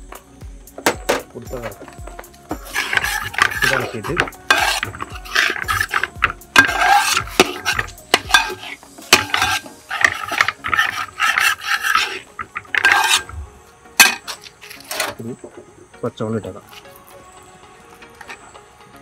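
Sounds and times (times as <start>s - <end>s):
metal ladle scraping a pot: 1.7s - 13.4s, 14.0s - 15.5s.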